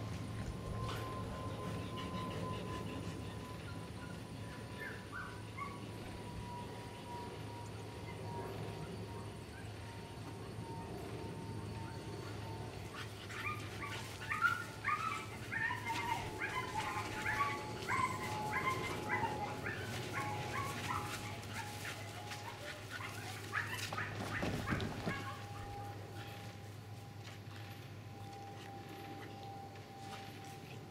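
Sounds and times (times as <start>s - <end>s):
dog barking in high yips: 13.4s - 25.8s.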